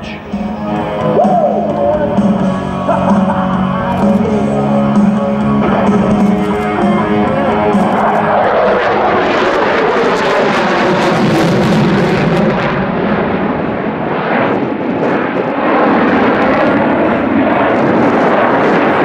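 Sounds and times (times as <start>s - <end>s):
rock music with electric guitar: 0.0s - 13.2s
jet engines rushing: 0.0s - 19.0s.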